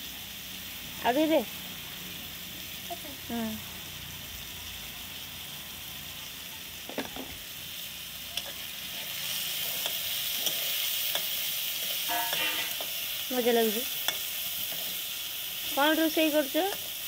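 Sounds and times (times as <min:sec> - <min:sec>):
vegetables sizzling in a wok: 0:00.0 - 0:17.0
metal spatula scraping pan: 0:08.4 - 0:13.1.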